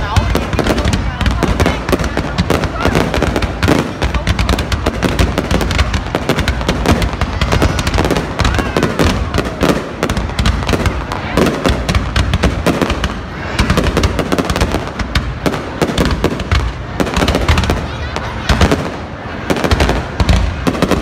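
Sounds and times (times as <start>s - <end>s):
fireworks bursting and crackling: 0.0s - 21.0s.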